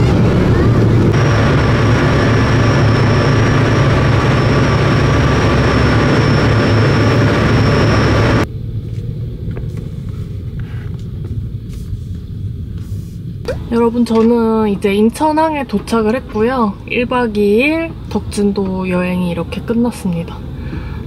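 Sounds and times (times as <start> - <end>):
rushing noise: 0.0 - 9.4
ferry engine drone: 0.0 - 21.0.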